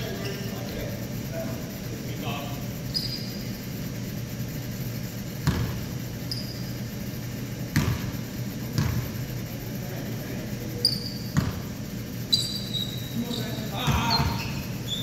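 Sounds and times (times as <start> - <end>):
steady low hum: 0.0 - 15.0
brief high squeak: 2.9 - 3.4, 6.3 - 6.7, 12.3 - 13.5
basketball bouncing on hardwood: 5.4 - 5.8, 7.7 - 9.0, 11.3 - 11.7.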